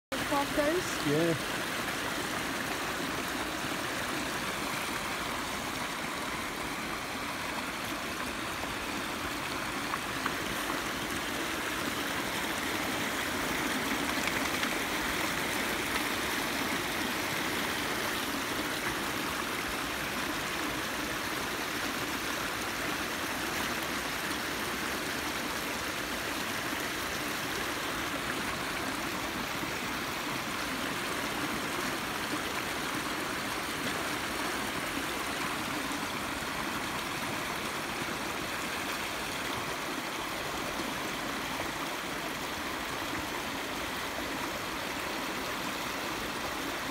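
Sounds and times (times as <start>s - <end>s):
stream running over rocks: 0.1s - 46.9s.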